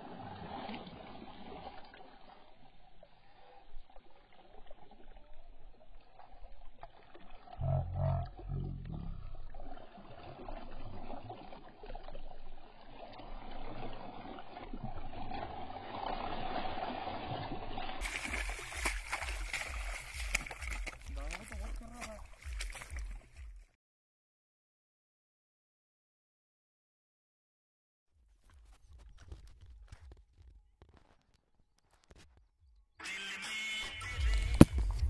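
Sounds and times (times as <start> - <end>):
fish thrashing in shallow water: 0.0 - 7.6, 9.2 - 23.7
low rumble: 7.6 - 9.6
boots wading through water: 9.3 - 23.7, 28.3 - 31.2.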